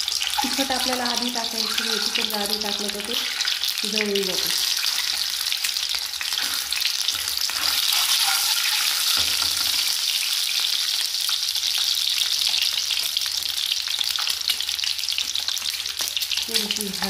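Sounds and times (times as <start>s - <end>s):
eggs sizzling in oil: 0.0s - 17.0s.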